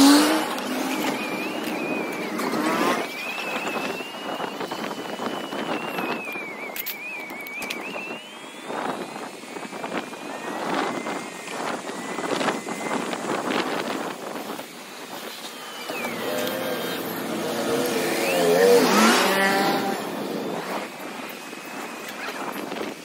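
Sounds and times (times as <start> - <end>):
road noise: 0.0 - 23.0
rushing wind: 0.0 - 23.0
street traffic: 0.0 - 23.0
vehicle engine passing close: 15.5 - 21.0.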